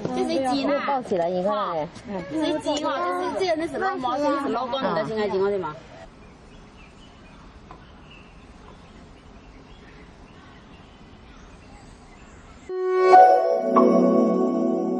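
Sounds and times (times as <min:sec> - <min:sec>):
faint outdoor background noise: 0:00.0 - 0:14.9
musical jingle of held notes: 0:12.7 - 0:14.9.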